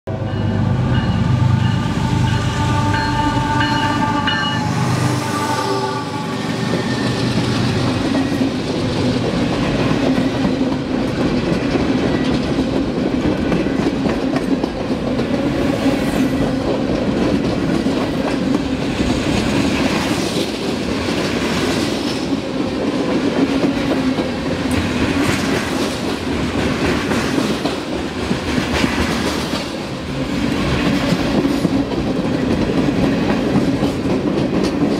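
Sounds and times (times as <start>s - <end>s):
train horn: 0.2s - 7.1s
wheels clickety-clack: 6.7s - 34.9s.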